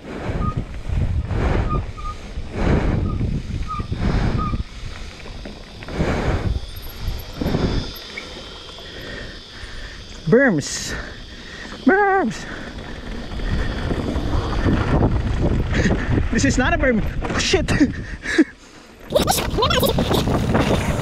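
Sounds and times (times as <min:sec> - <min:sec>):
wind buffeting microphone: 0:00.0 - 0:08.7, 0:12.3 - 0:18.3, 0:19.1 - 0:21.0
bike tyres rumbling on dirt: 0:00.0 - 0:21.0.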